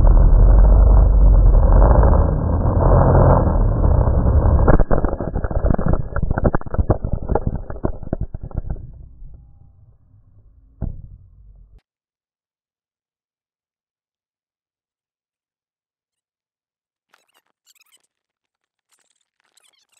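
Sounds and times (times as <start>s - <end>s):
quadcopter knocking and clattering: 0.0s - 9.6s.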